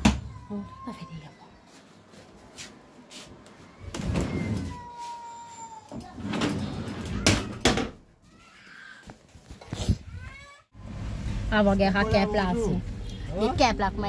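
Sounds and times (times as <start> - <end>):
sliding door rolling scrapes: 6.1 - 7.3.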